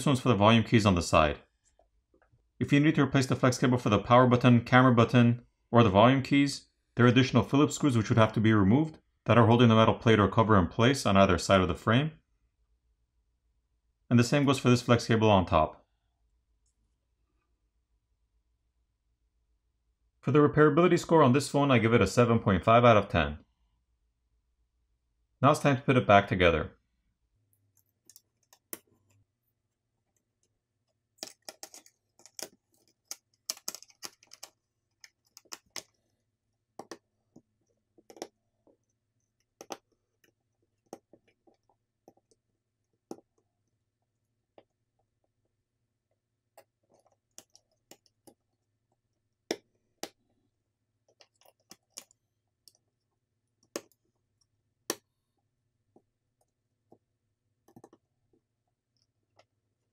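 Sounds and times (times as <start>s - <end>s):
small clicks and taps of tools: 46.6s - 48.6s, 57.6s - 59.5s.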